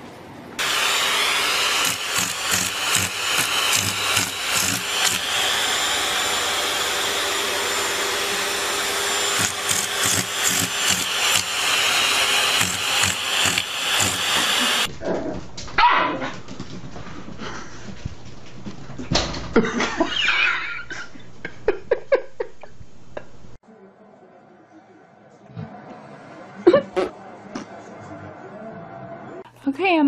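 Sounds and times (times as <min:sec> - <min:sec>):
motor whirring: 0:00.6 - 0:14.9.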